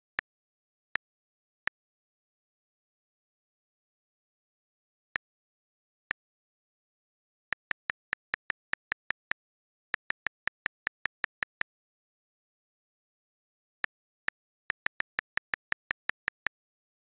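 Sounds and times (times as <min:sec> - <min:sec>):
touchscreen keyboard clicks: 0:13.9 - 0:16.6.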